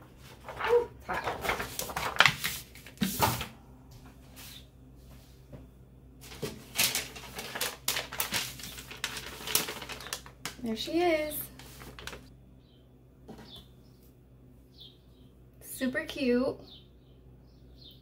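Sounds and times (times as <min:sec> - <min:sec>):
paper rustling and crinkling: 0:00.0 - 0:03.5, 0:06.2 - 0:12.3.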